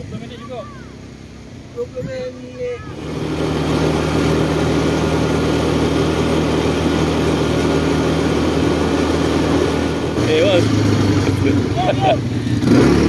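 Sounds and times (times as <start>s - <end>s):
quad bike engine running: 0.0s - 13.0s.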